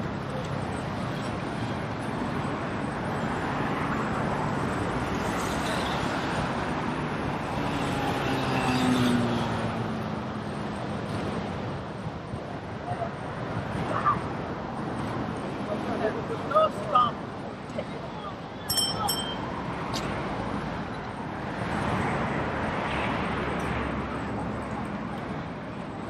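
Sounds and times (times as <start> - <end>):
passing cars: 0.0 - 26.0.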